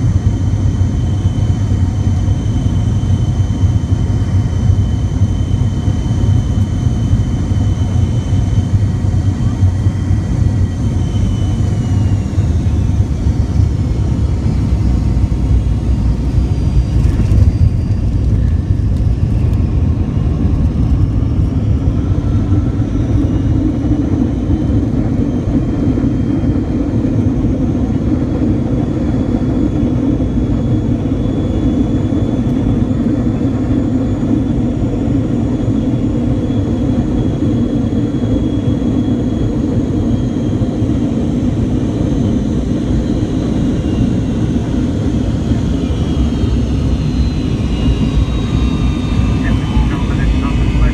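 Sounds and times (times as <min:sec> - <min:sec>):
jet engine rumble and whine: 0:00.0 - 0:50.9
engines roaring in reverse thrust: 0:44.6 - 0:50.9.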